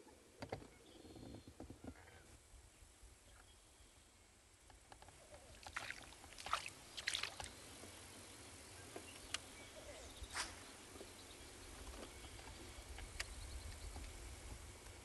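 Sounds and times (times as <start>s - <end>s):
water slapping against hull: 5.6s - 7.6s.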